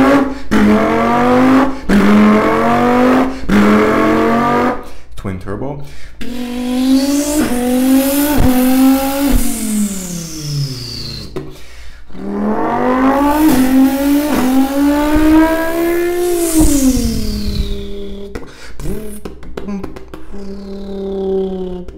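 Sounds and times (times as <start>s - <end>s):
man imitating engine revs: 0.0s - 4.9s, 6.2s - 11.4s, 12.1s - 21.9s.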